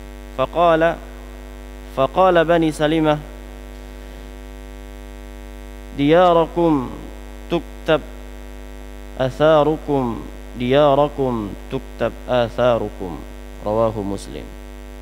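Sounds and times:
electrical mains hum: 0:00.0 - 0:15.0
man chanting through a microphone: 0:02.0 - 0:03.4, 0:05.9 - 0:08.1, 0:09.2 - 0:14.5.

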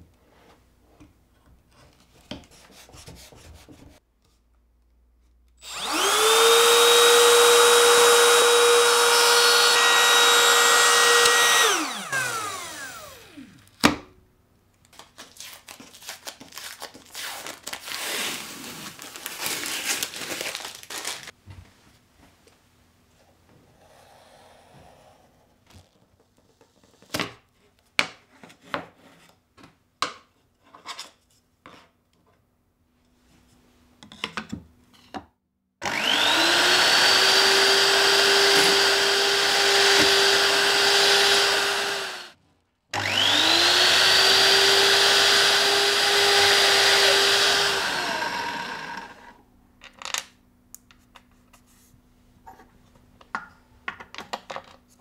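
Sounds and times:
electric drill whining: 0:05.6 - 0:13.8, 0:35.8 - 0:42.4, 0:43.0 - 0:49.4.

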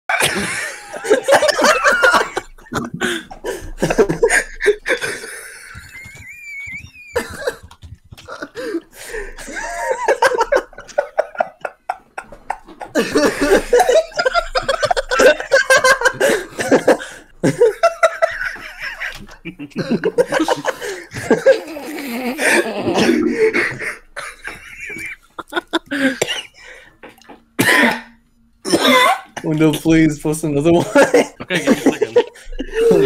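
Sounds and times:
people laughing hard: 0:00.1 - 0:26.8, 0:30.8 - 0:33.0.

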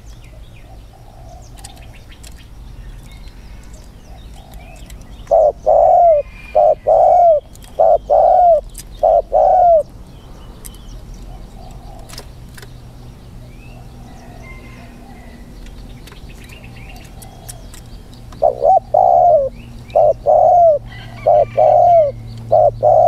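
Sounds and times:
dove cooing loudly: 0:05.3 - 0:09.9, 0:11.3 - 0:12.2, 0:18.4 - 0:23.0.

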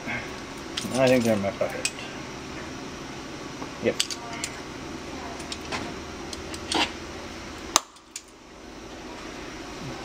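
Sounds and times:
fan hum: 0:00.0 - 0:10.0.

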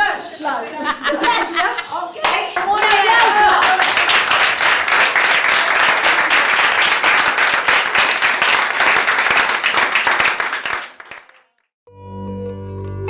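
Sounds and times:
group of people applauding: 0:01.4 - 0:11.7.

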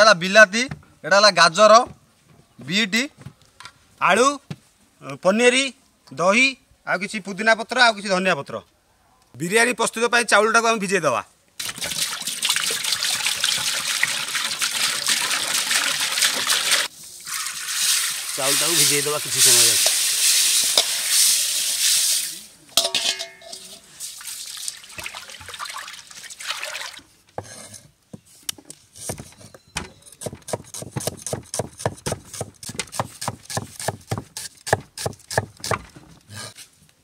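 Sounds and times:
rice pouring into water: 0:11.6 - 0:22.4
cleaver chopping on wooden board: 0:30.2 - 0:35.8.

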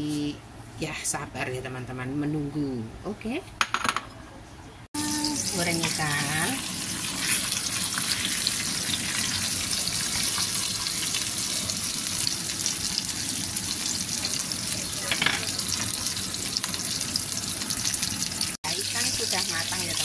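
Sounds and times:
oil sizzling and crackling: 0:05.0 - 0:20.0.

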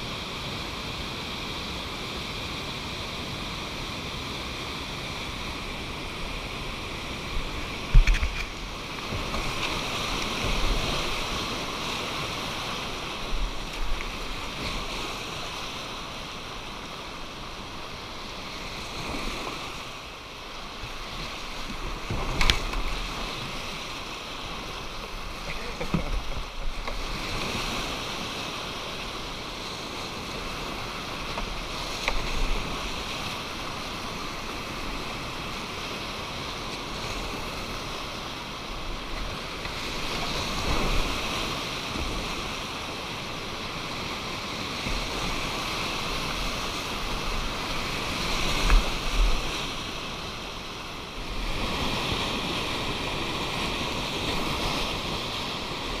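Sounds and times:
river rapids rushing: 0:00.0 - 0:56.0
wind rumble on microphone: 0:05.4 - 0:15.6.

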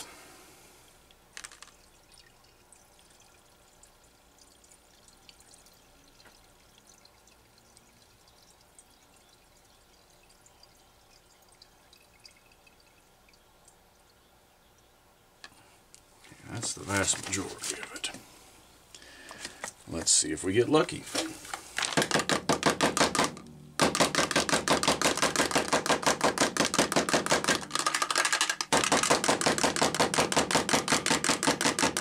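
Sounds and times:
fuel trickling through funnel: 0:00.0 - 0:22.1.

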